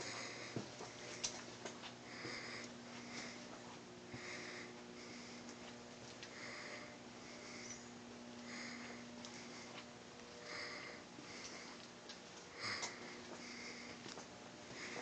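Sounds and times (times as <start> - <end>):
steady low hum: 0.0 - 15.0
person breathing through nose: 2.1 - 5.7, 6.3 - 7.8, 8.4 - 9.8, 10.4 - 11.8, 12.5 - 15.0.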